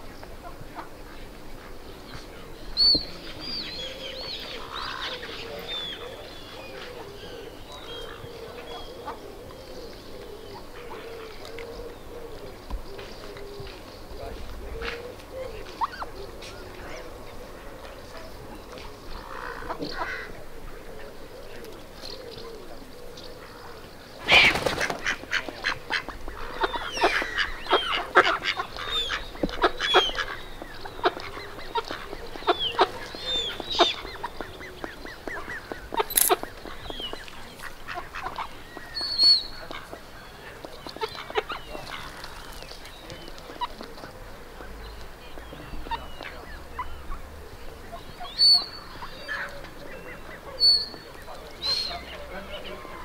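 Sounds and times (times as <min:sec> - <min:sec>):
waterfowl honking and quacking: 0:19.3 - 0:20.4, 0:24.3 - 0:42.2.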